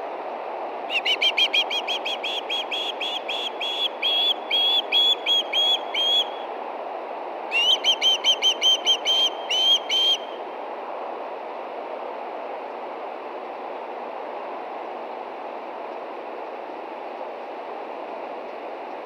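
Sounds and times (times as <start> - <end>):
osprey whistled chirps: 0.9 - 6.4, 7.5 - 10.4
steady rushing noise: 8.9 - 19.0.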